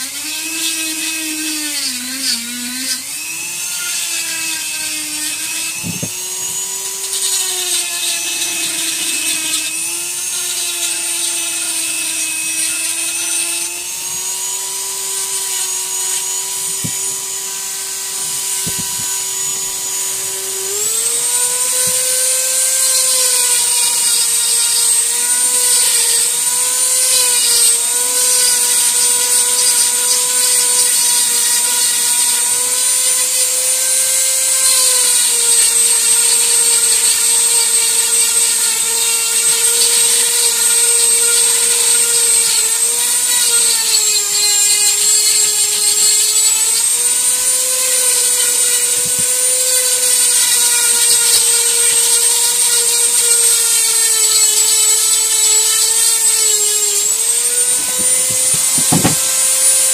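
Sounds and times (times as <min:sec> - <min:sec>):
rotary carving tool whining: 0:00.0 - 0:59.9.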